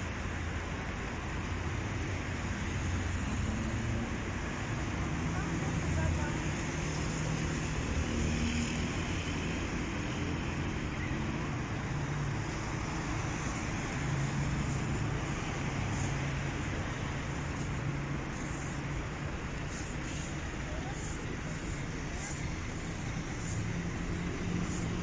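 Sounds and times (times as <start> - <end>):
low engine hum: 0.4 - 25.0
cars passing: 1.7 - 25.0.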